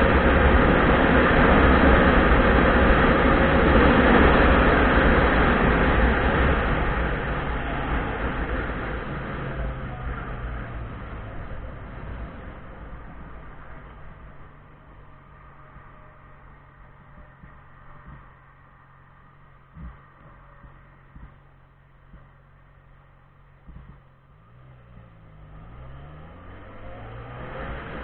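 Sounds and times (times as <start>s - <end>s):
wind rush: 0.0s - 18.3s
motorcycle engine rumble: 0.0s - 28.0s.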